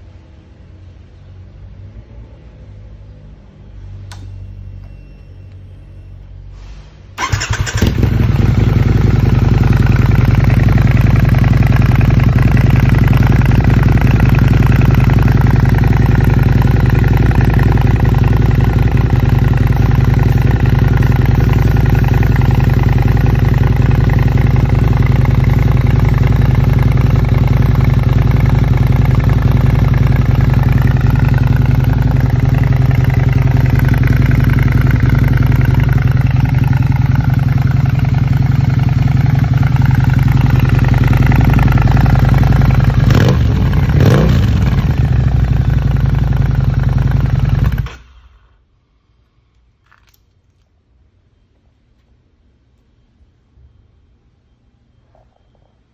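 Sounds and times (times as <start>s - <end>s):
motorcycle engine starting and idling: 7.1s - 48.7s.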